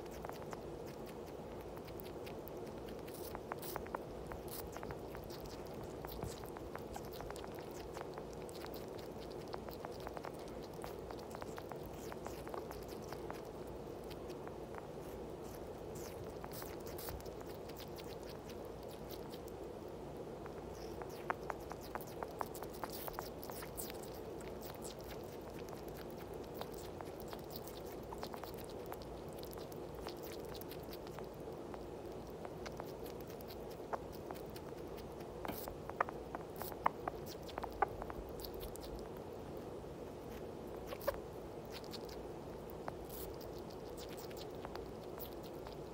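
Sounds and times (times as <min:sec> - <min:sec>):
small animals chewing: 0:00.0 - 0:45.9
steady hum: 0:00.0 - 0:45.9.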